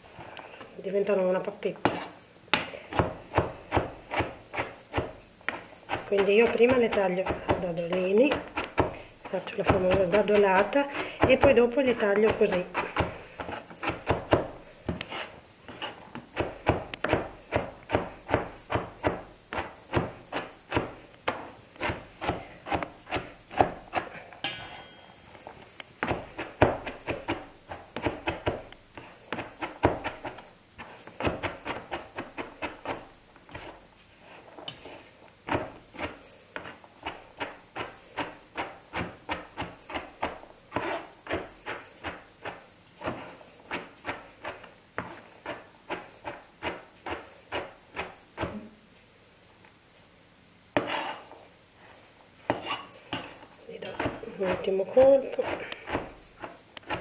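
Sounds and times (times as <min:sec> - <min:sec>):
knife chopping on cutting board: 0:01.8 - 0:09.0.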